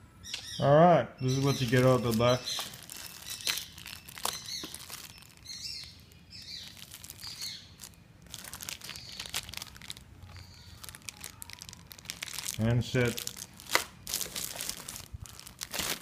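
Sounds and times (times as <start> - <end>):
bird chirps: 0.2 - 8.0, 8.6 - 11.7
plastic bags crinkling: 1.3 - 16.0.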